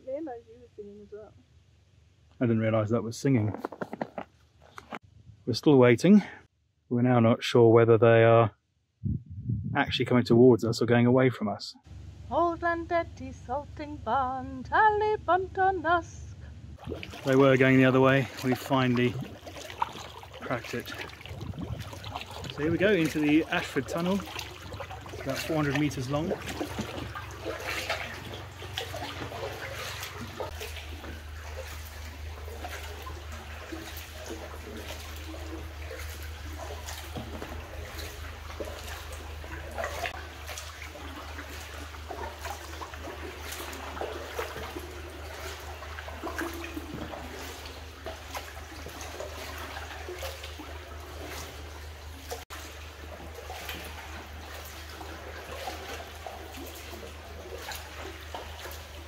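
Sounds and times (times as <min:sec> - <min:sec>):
steady low hum: 0:09.0 - 0:58.3
paddle splashing in water: 0:16.8 - 0:59.0.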